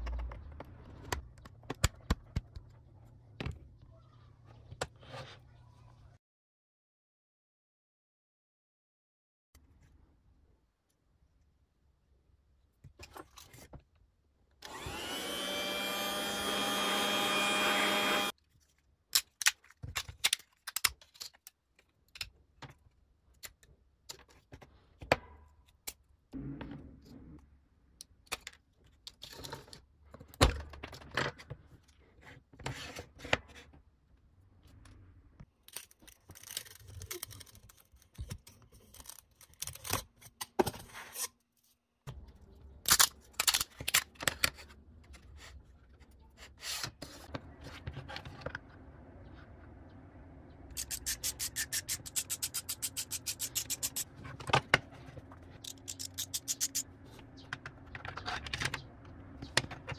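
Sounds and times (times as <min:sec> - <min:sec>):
small electric motor tool running: 0:14.6 - 0:18.3.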